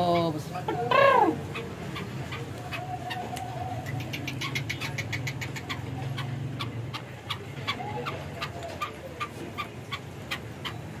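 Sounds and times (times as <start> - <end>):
francolin making sharp ticks: 2.0 - 7.8.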